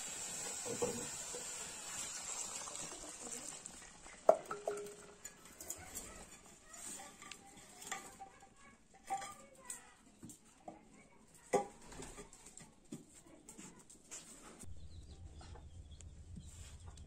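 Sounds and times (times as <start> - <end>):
cooking utensils clinking: 0.3 - 9.8
steel plate clanking on a wok: 4.3 - 5.8.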